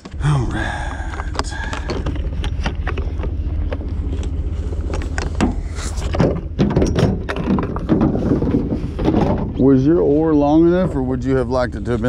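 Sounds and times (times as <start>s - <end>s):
wind rumble: 0.0s - 12.0s
paddles knocking and clattering: 0.8s - 12.0s
paddles bumping in truck bed: 1.7s - 9.8s.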